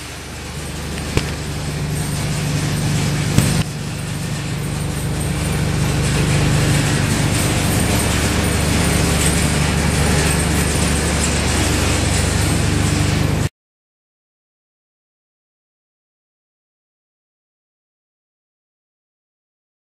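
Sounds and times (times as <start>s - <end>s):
low hum: 0.0s - 10.8s
gas burner flame rushing: 0.2s - 4.5s.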